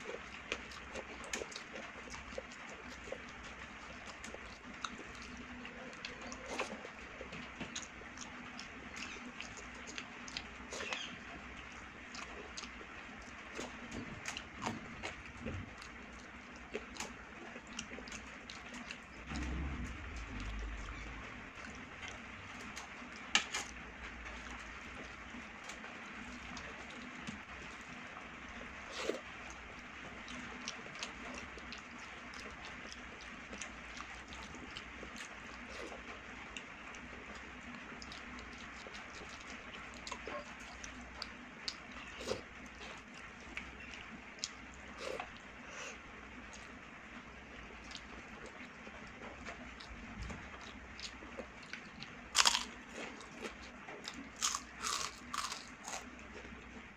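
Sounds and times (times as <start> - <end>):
chewing and wet mouth clicks: 0.1 - 15.2, 15.8 - 19.6, 29.0 - 45.5, 47.8 - 48.8, 49.4 - 56.6.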